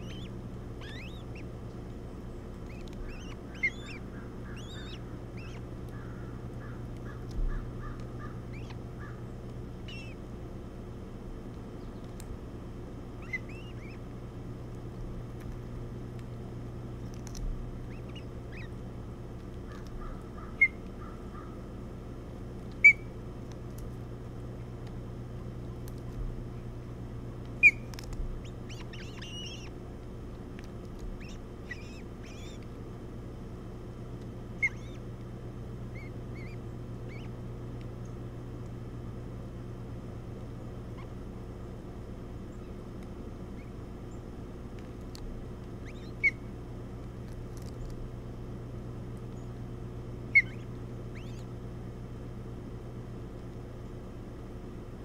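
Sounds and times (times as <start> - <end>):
osprey high chirps: 0.0 - 1.5, 2.6 - 5.6, 27.6 - 29.7, 34.6 - 35.0, 50.3 - 51.5
steady background hum: 0.0 - 55.0.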